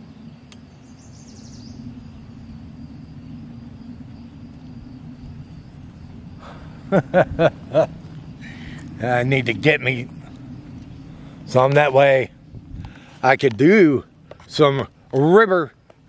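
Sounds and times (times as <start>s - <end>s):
faint high insect buzz: 0.0s - 16.0s
low rumble: 0.0s - 16.0s
bird trill: 0.6s - 2.2s.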